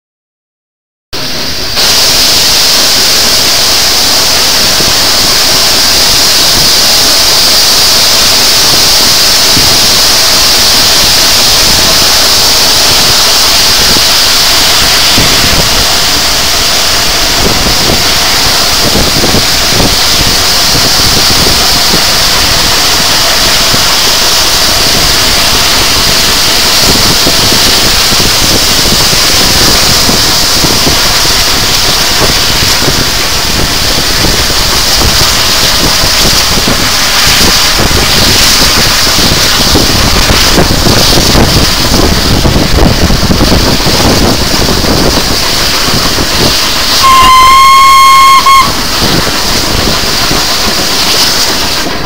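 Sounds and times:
train running noise and air rush: 1.2 - 52.0.

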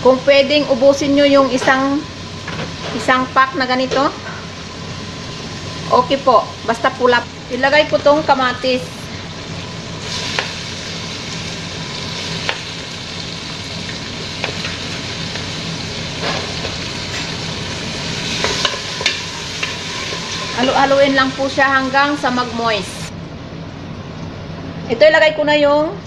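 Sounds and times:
food sizzling in oil: 0.0 - 23.1.

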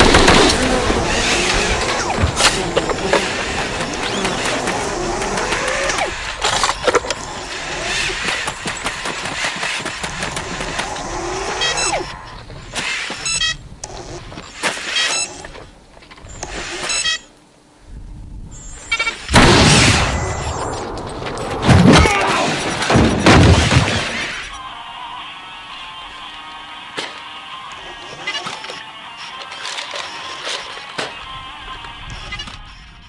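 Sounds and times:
mechanical clatter: 0.0 - 12.0
servo motors whining: 0.0 - 17.3, 27.0 - 33.0
loud crash: 19.3 - 24.6.

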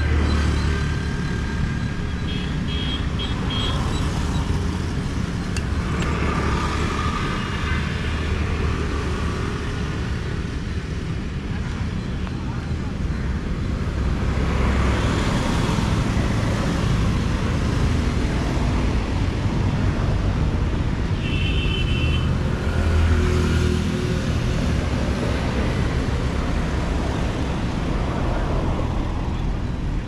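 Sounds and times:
city road traffic: 0.0 - 30.0.

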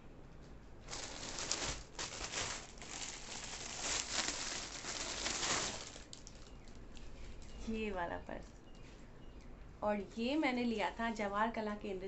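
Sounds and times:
bags rustling and crinkling: 0.8 - 7.5.

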